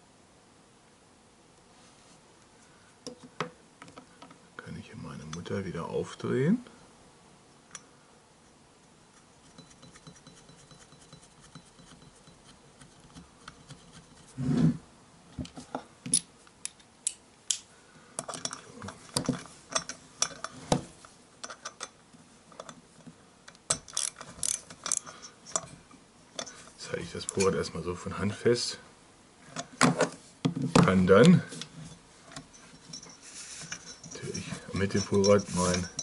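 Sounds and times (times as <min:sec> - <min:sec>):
metal tools clicking: 0:23.7 - 0:25.7, 0:26.4 - 0:27.6, 0:32.5 - 0:36.0.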